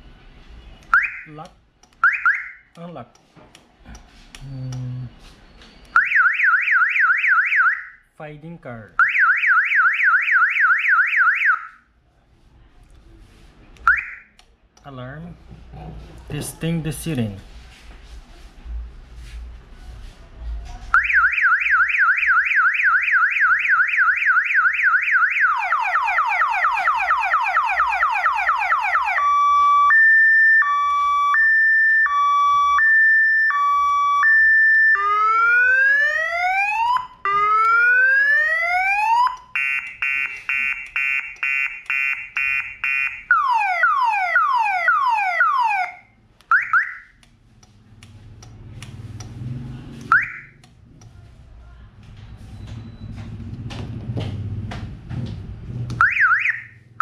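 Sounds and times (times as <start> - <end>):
car alarm siren cycling tones: 0.9 - 2.8, 5.8 - 8.0, 9.0 - 11.8, 13.8 - 14.4, 21.0 - 47.2, 50.0 - 50.8, 56.0 - 56.9.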